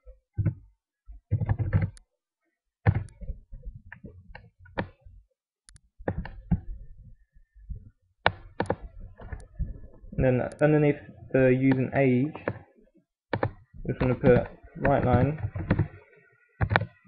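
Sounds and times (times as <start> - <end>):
typing on computer keyboard: 1.3 - 2.0, 8.6 - 8.8, 13.3 - 16.0, 16.6 - 17.0.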